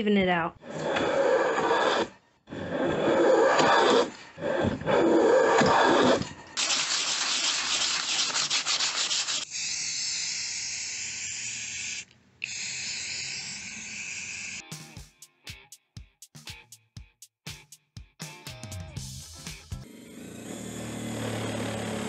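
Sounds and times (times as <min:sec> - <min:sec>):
hand tool shaving board: 0:00.6 - 0:09.6
sandpaper rasping on board: 0:04.9 - 0:09.5
aerosol spray can hissing: 0:06.6 - 0:09.5.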